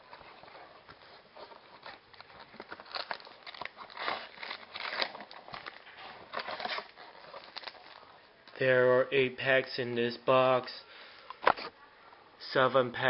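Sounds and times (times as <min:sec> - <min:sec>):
packaging crinkling and tearing: 0:00.8 - 0:08.6.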